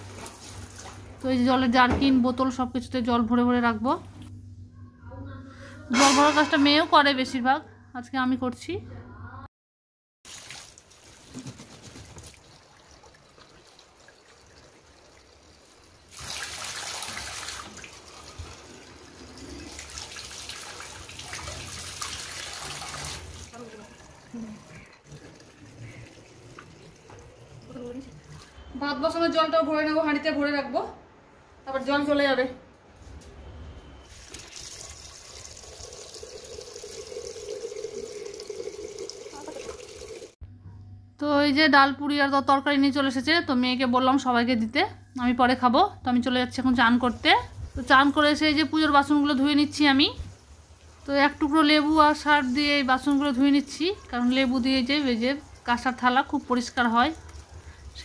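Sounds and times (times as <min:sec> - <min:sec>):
water splashing into concrete basin: 0:10.2 - 0:28.5, 0:34.1 - 0:40.4
tap water filling plastic bottles: 0:10.3 - 0:28.6, 0:34.1 - 0:40.4, 0:51.5 - 0:58.0.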